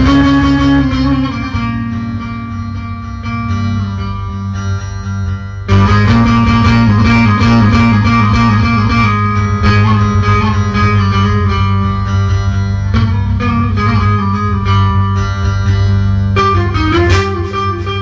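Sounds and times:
plucked string melody: 0.0s - 18.0s.

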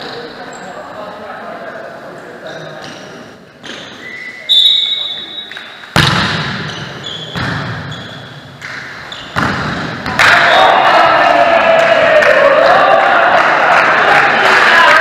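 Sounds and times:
shoe squeaks on court floor: 2.5s - 5.8s, 6.6s - 9.5s
volleyball being struck: 5.9s - 6.7s, 8.6s - 10.5s
players shouting and cheering: 9.4s - 15.0s.

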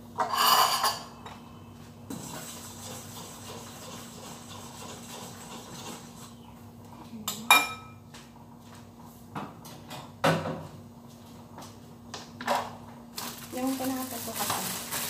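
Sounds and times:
dishes clinking: 0.2s - 1.5s, 7.4s - 8.0s.

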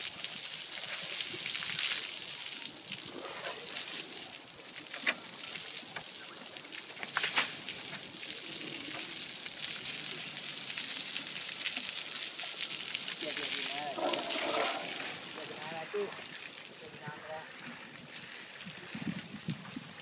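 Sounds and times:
water spraying and splashing: 0.0s - 20.0s.

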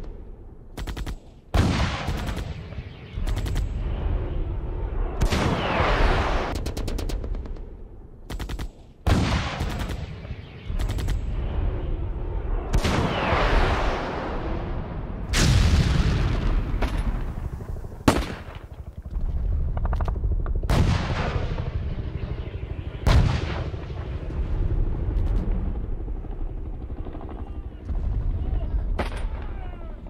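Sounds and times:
heavy low rumble: 11.2s - 30.0s.

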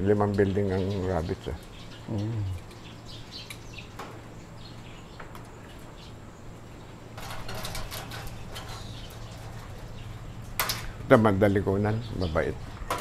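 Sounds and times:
steady low hum: 0.0s - 13.0s
rustling and clattering: 6.8s - 11.0s.

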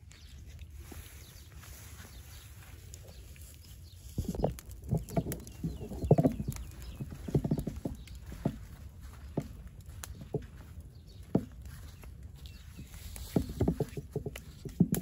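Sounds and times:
straw fire crackling: 0.0s - 15.0s.

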